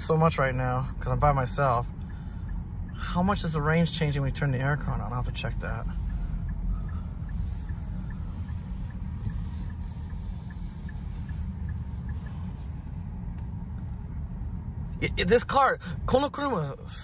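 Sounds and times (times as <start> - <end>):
road and tyre rumble: 0.0 - 17.0
faint even ticking: 1.8 - 14.2.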